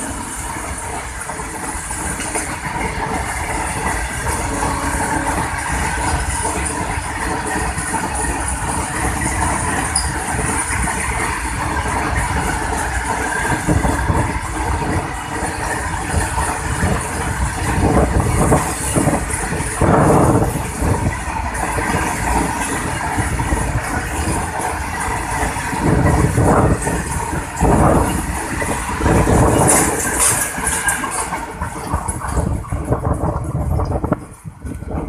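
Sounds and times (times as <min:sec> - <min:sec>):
freight train rolling past: 0:00.0 - 0:35.0
wagons clattering over track: 0:00.0 - 0:35.0.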